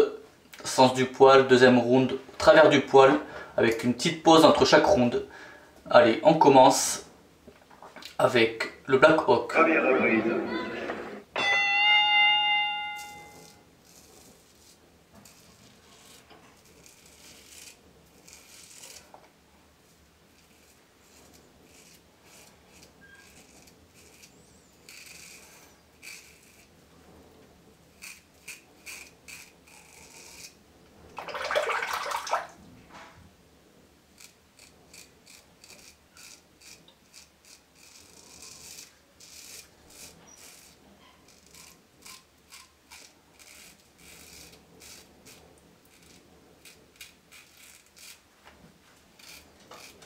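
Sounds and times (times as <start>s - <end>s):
razor scraping through stubble: 13.0s - 19.2s, 20.3s - 26.8s, 27.9s - 30.6s, 34.1s - 48.3s, 49.0s - 50.0s.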